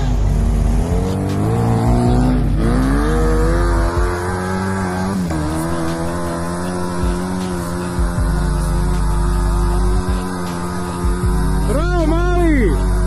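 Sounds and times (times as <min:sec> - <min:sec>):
engine revving hard: 0:00.0 - 0:13.0.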